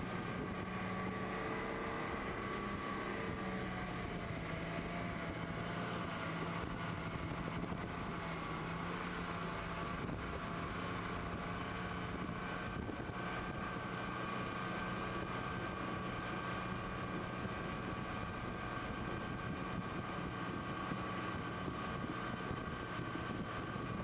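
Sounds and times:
outboard motor running under load: 0.0s - 24.0s
wind on microphone: 9.9s - 13.9s, 16.8s - 24.0s.

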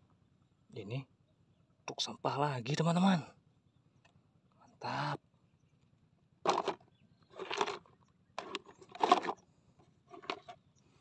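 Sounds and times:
plastic toy trucks clattering: 6.5s - 9.4s, 10.1s - 10.6s.

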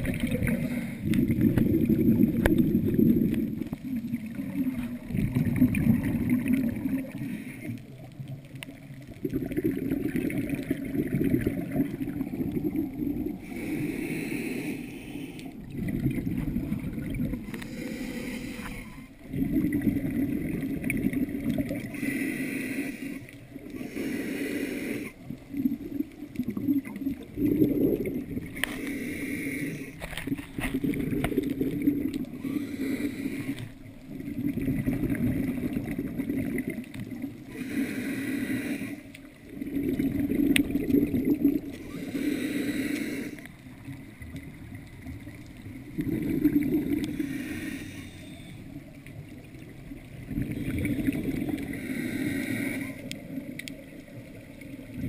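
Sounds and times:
burble of exhaled bubbles: 0.0s - 13.8s, 15.4s - 17.8s, 18.7s - 22.0s, 25.2s - 28.9s, 29.8s - 37.6s, 39.1s - 42.1s, 43.2s - 55.0s
hissing regulator inhalation: 13.4s - 15.5s, 17.4s - 19.1s, 21.8s - 25.2s, 27.4s - 30.0s, 31.8s - 33.8s, 37.5s - 39.8s, 41.7s - 43.5s, 46.2s - 48.6s, 51.5s - 53.4s.

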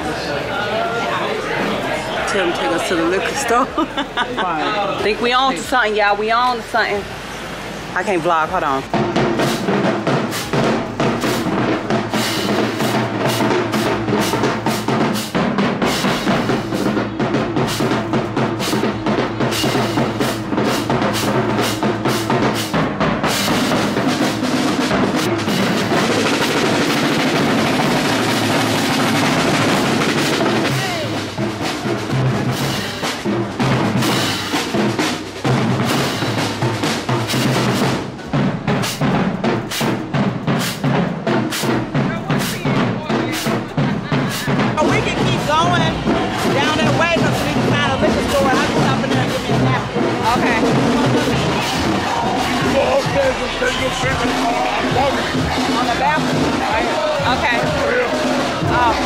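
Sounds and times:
marching drums beat: 2.3s - 7.1s, 8.0s - 59.0s
hand cymbals crashing: 9.0s - 31.8s.

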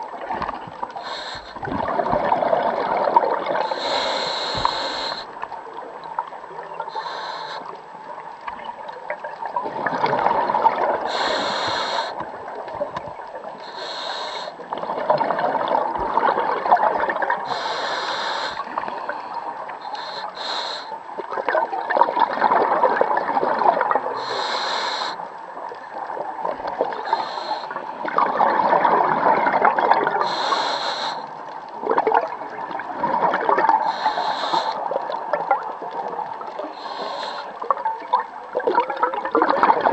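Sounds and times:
hissing regulator inhalations: 1.0s - 1.7s, 3.6s - 5.4s, 6.8s - 7.8s, 11.1s - 12.2s, 13.6s - 14.6s, 17.4s - 21.0s, 24.2s - 25.2s, 27.0s - 27.9s, 30.2s - 31.4s, 33.8s - 34.9s, 36.7s - 37.6s.

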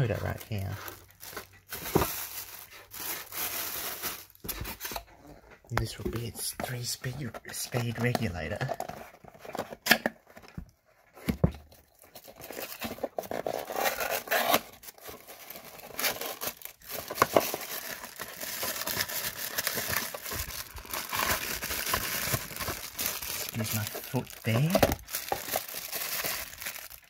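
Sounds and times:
cardboard scraping and tearing: 12.2s - 27.0s.

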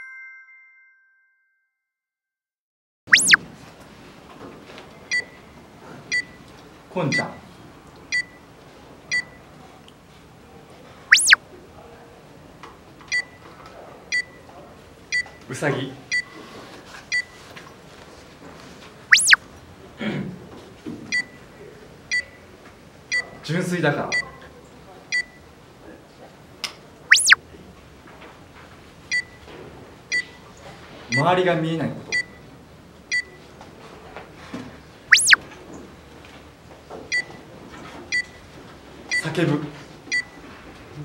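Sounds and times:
countdown timer beeps: 3.1s - 3.4s, 11.1s - 11.4s, 19.1s - 19.4s, 27.1s - 27.4s, 35.1s - 35.4s
swoosh effect: 3.1s - 3.4s
whistle-like pitch glide: 3.1s - 3.4s, 11.1s - 11.4s, 19.1s - 19.4s, 27.1s - 27.4s, 35.1s - 35.4s.

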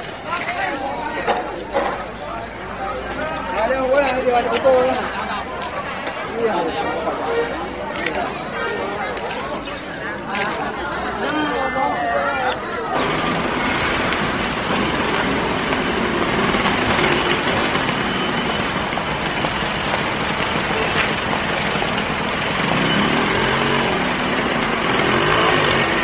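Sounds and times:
passing vehicles: 0.0s - 26.0s
engine note rising and falling: 19.6s - 26.0s.

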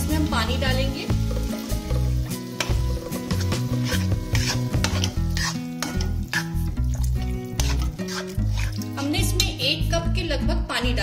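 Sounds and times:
spices sizzling: 0.0s - 9.9s
spatula scraping a pan: 2.5s - 6.7s, 7.5s - 9.5s.

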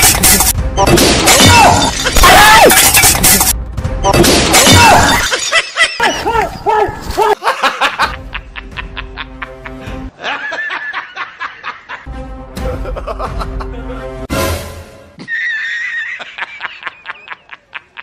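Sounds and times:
comic laughing sound effects: 1.8s - 3.6s, 4.6s - 6.6s, 7.2s - 14.3s, 15.2s - 18.0s.

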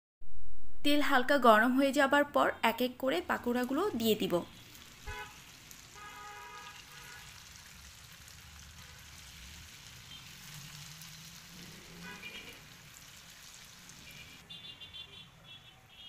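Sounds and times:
food sizzling in oil: 3.4s - 14.4s.

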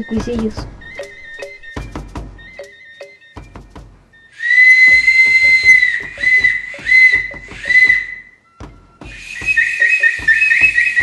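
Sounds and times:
clay whistle blown: 4.3s - 11.0s.

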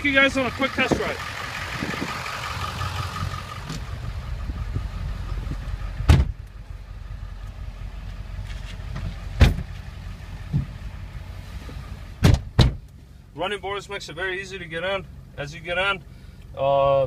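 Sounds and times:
diesel engine idling: 0.0s - 17.0s
knocks and thumps climbing into cab: 6.1s - 6.4s, 8.9s - 9.8s, 10.4s - 10.8s, 12.2s - 12.8s.

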